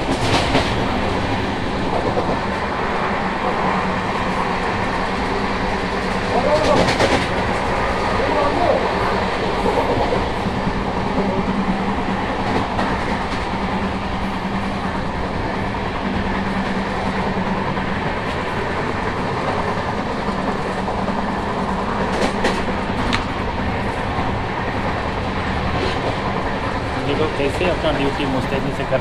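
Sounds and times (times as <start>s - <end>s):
train running rumble and rattle: 0.0s - 29.0s
sharp clacks: 22.1s - 23.4s.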